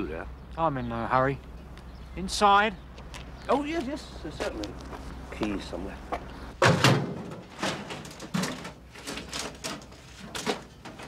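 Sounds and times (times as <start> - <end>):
metal drawers opening and shutting: 6.6 - 11.0.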